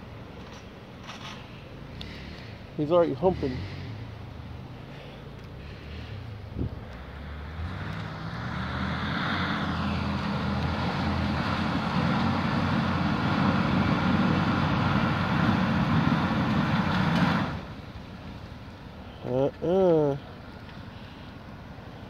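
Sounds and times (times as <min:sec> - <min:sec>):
truck engine revving hard: 0:03.2 - 0:04.3, 0:05.6 - 0:17.8.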